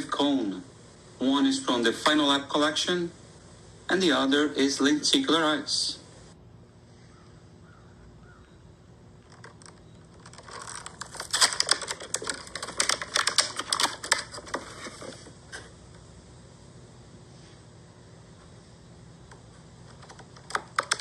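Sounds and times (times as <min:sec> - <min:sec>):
plastic blister packaging crinkling: 0:09.2 - 0:15.7, 0:19.8 - 0:21.0.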